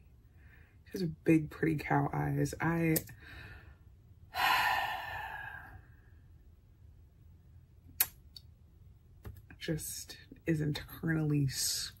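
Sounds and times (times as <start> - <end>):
breathy sigh: 3.2 - 5.9.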